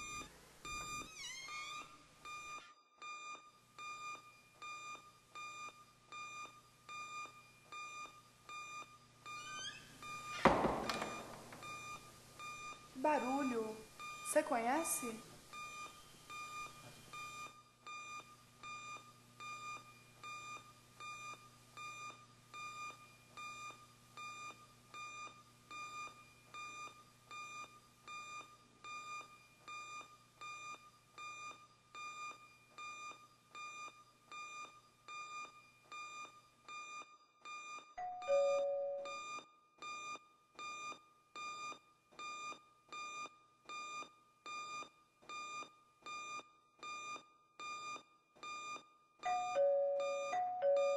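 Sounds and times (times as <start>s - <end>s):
electronic alarm beeping: 0.0s - 50.9s
two-note doorbell ding-dong: 38.0s - 39.2s, 49.2s - 50.9s.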